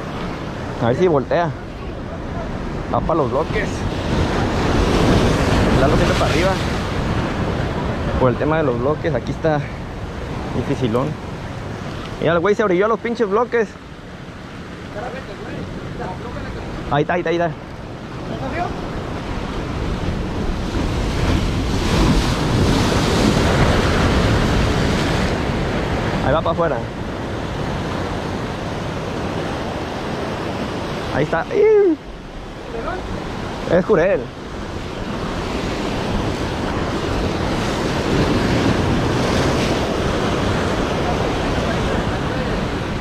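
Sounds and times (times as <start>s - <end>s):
waves crashing on rocks: 0.0s - 43.0s
wind buffeting microphone: 17.6s - 26.3s.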